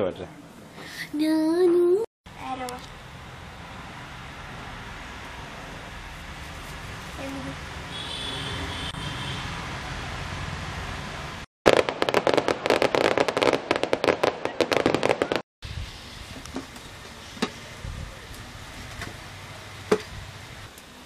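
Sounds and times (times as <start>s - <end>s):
fireworks crackling and banging: 11.7s - 21.0s.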